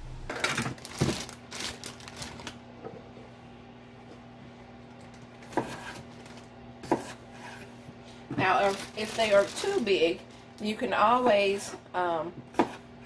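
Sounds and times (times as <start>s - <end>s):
faint steady hum: 0.0s - 13.0s
plastic bag crinkling: 0.3s - 2.6s, 6.1s - 6.5s, 8.4s - 10.8s.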